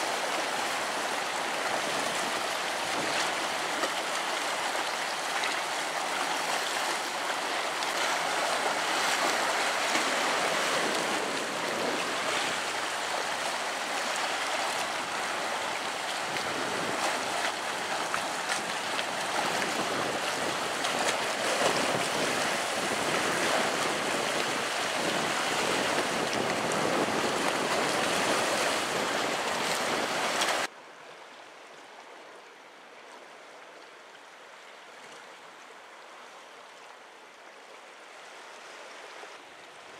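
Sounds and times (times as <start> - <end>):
surf washing over rocks: 0.0 - 30.7.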